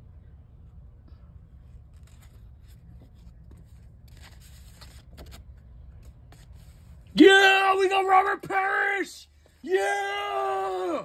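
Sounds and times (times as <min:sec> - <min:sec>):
low steady hum: 0:00.0 - 0:08.5
paper rustling and crinkling: 0:01.7 - 0:07.0.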